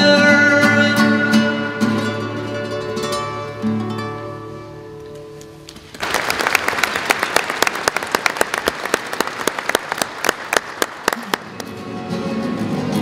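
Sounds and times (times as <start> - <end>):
audience applause: 5.9 - 11.8.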